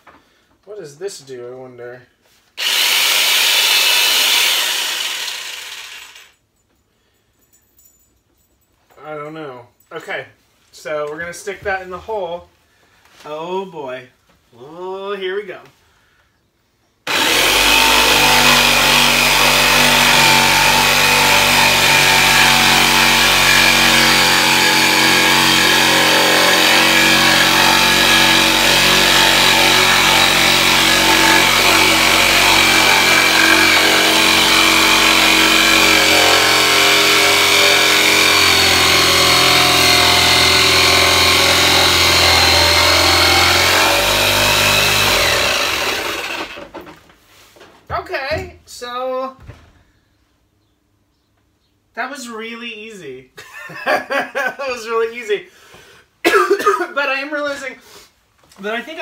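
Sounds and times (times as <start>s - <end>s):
electric jigsaw cutting wood: 2.6s - 6.3s, 17.1s - 46.8s.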